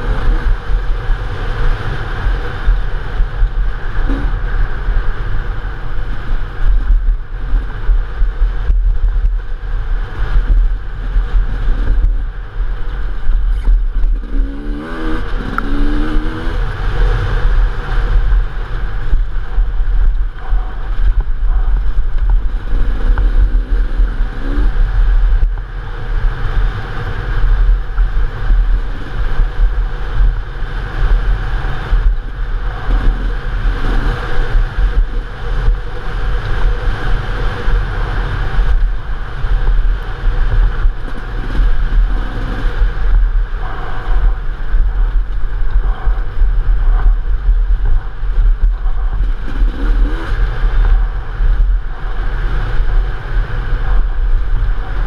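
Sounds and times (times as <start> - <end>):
dirt bike engine: 0.0 - 55.0
wind noise on microphone: 0.0 - 55.0.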